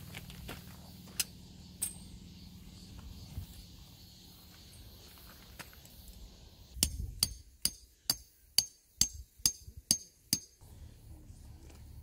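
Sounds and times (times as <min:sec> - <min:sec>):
hammer striking metal tent peg: 0:06.8 - 0:10.6.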